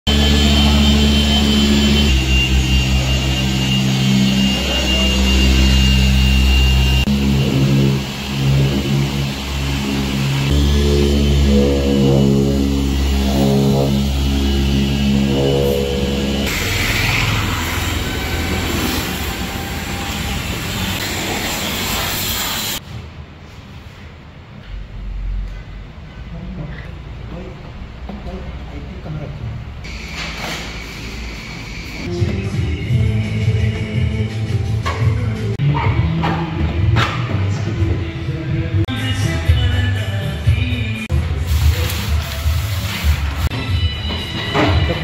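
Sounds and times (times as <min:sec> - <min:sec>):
electric polisher motor whine: 0:00.1 - 0:22.0
pressure washer spraying water: 0:12.0 - 0:22.8.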